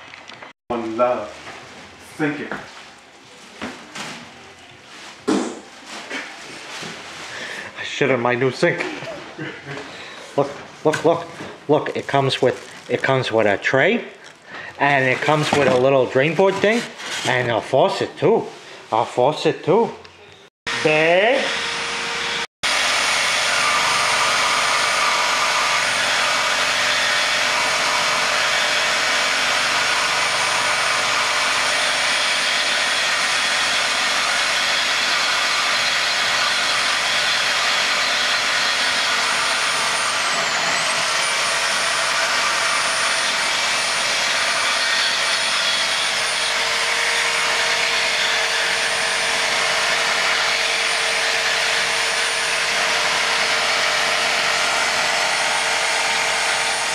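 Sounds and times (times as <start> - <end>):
power tool cutting pipe: 20.7 - 56.9.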